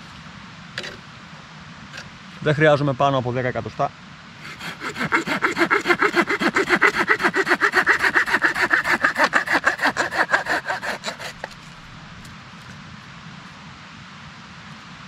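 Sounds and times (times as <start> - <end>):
hand saw cutting wood: 4.4 - 12.4.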